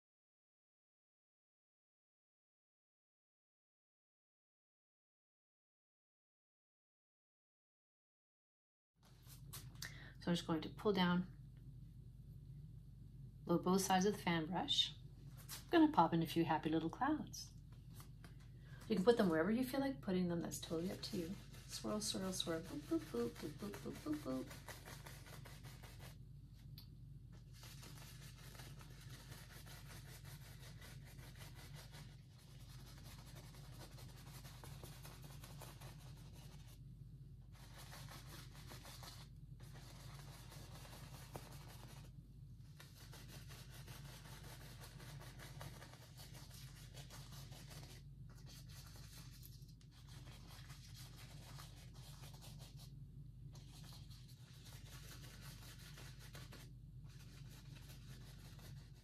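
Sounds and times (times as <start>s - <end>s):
steady low hum: 9.2s - 59.0s
brush rubbing on canvas: 20.5s - 26.7s, 27.4s - 36.8s, 37.5s - 52.9s, 53.5s - 59.0s.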